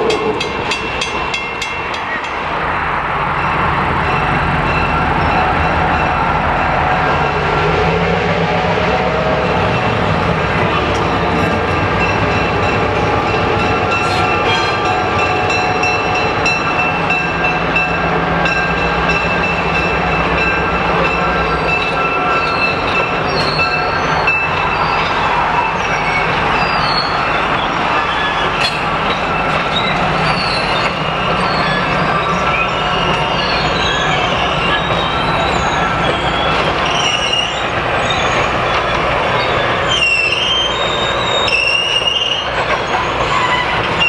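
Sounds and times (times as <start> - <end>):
diesel locomotive engine drone: 0.0 - 44.0
thin wheel squeal: 26.0 - 28.8, 29.7 - 38.6, 39.4 - 44.0.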